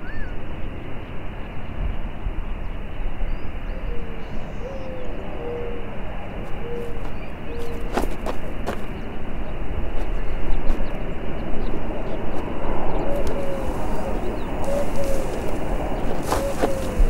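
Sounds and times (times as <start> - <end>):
dove cooing: 3.8 - 8.8, 12.9 - 17.0
low outdoor rumble: 5.2 - 17.0.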